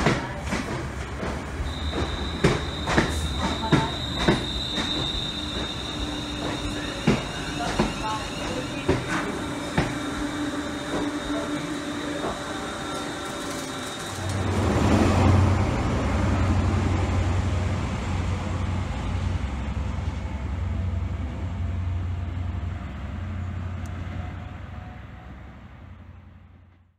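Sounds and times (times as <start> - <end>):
diesel train low drone: 0.0 - 26.9
electric train motor whine: 1.7 - 15.8.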